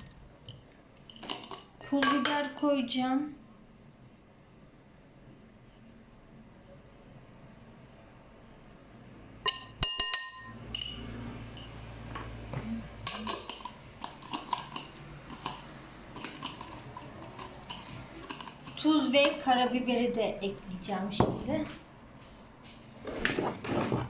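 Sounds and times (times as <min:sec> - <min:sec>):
teaspoon clinking against glass: 0:09.5 - 0:11.8
spice jar rattling: 0:13.2 - 0:19.4.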